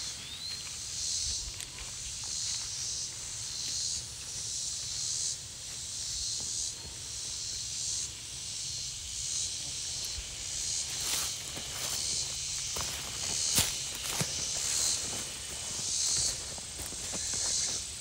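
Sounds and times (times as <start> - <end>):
footsteps through grass: 0.0 - 5.0, 9.8 - 18.0
cicadas buzzing: 0.0 - 18.0.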